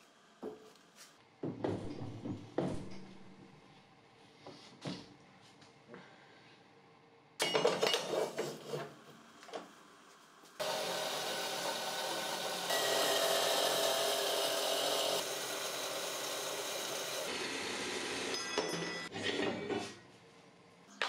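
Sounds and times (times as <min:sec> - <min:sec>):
power tool running: 0:10.6 - 0:18.4.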